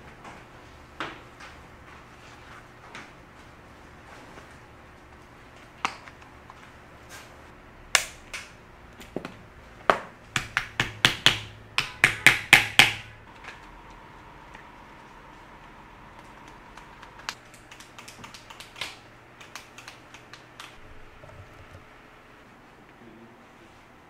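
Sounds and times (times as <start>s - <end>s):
hammer tapping on board: 9.9s - 13.1s.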